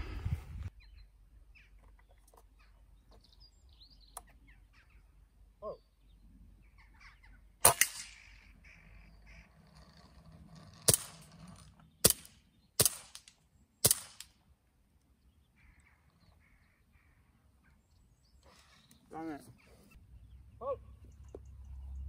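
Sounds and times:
faint bird calls: 0:00.8 - 0:10.3, 0:15.3 - 0:21.5
air pistol shots: 0:07.6 - 0:08.3, 0:10.9 - 0:11.2, 0:12.0 - 0:14.4
air rifle shot cracking: 0:07.6 - 0:08.4, 0:12.0 - 0:14.3.

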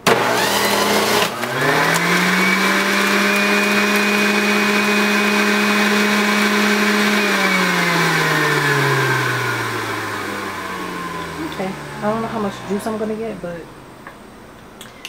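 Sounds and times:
juicer motor whining: 0:00.0 - 0:13.4.

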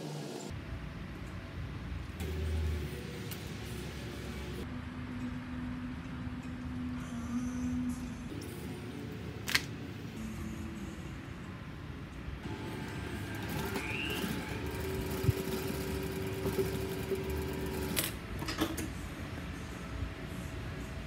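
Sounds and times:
sewing machine humming: 0:12.4 - 0:18.2.

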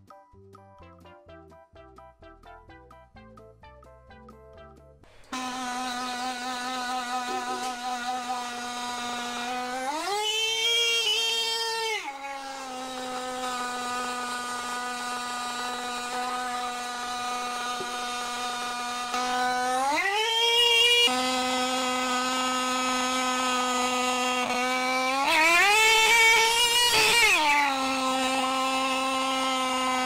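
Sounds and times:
motorcycle horn buzzing underwater: 0:05.4 - 0:09.1.

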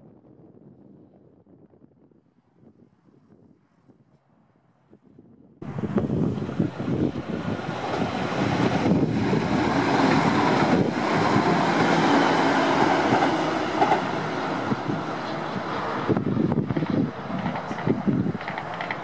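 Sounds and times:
diesel train passing: 0:05.6 - 0:19.0
train wheels on rails: 0:05.9 - 0:19.0.

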